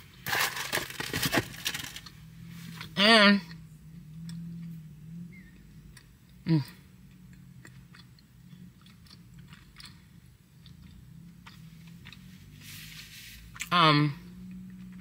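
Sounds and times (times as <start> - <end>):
low steady hum: 0.0 - 15.0
person chewing: 7.0 - 12.6, 13.4 - 13.7, 14.4 - 15.0.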